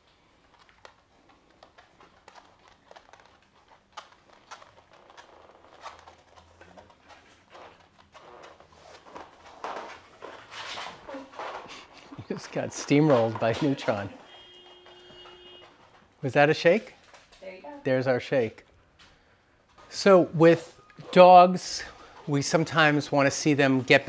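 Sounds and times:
dog claws ticking on floor: 0.0s - 16.1s.

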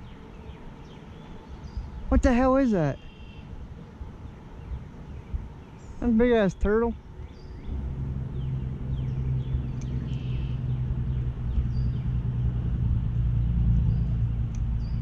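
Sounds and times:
motor engine running: 7.6s - 15.0s.

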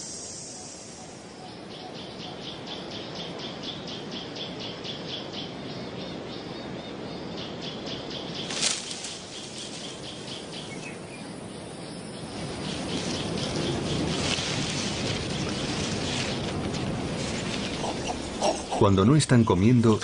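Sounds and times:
soft hiss: 0.0s - 2.2s, 8.4s - 18.8s
foliage rustle: 8.2s - 20.0s.

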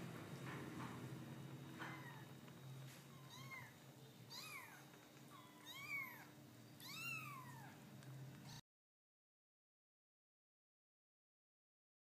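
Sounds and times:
kittens mewing: 3.1s - 7.8s.

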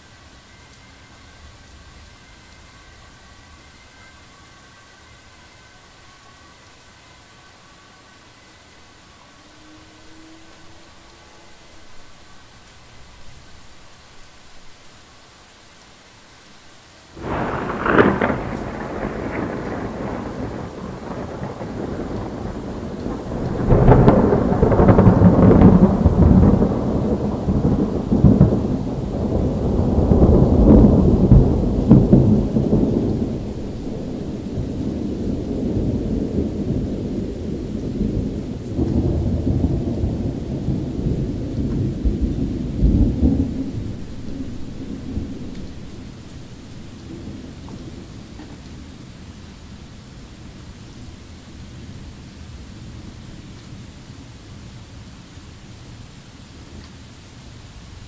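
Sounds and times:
steady rain falling: 0.0s - 58.0s
thunder crack and rumble: 17.2s - 49.0s.

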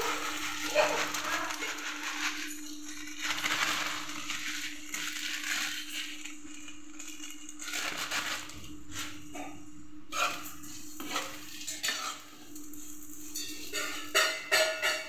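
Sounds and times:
dry noodles pouring into pan: 0.0s - 9.1s.

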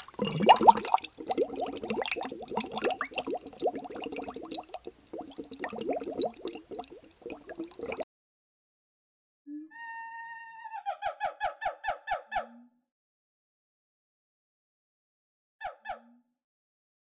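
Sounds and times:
water bubbling and gurgling: 0.0s - 8.0s.

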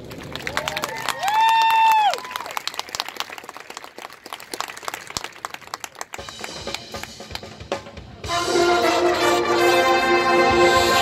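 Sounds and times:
marching band percussion hits: 6.2s - 11.0s
brass chords: 6.4s - 11.0s.

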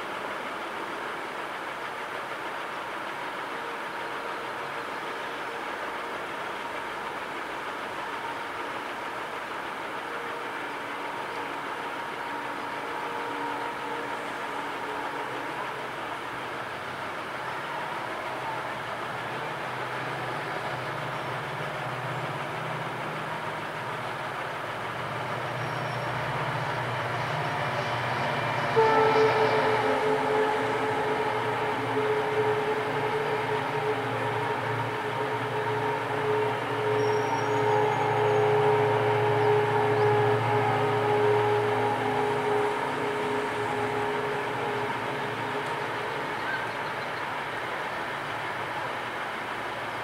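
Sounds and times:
distant city traffic hum: 0.0s - 50.0s
loud horn: 25.4s - 47.0s.

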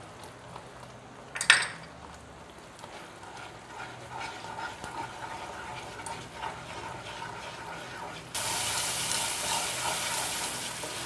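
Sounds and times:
paste sizzling: 2.8s - 11.0s
spatula scraping pan: 2.9s - 11.0s.

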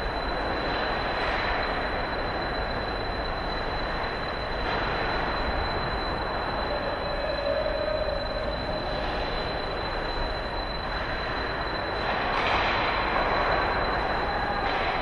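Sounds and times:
constant high whine: 0.0s - 15.0s.

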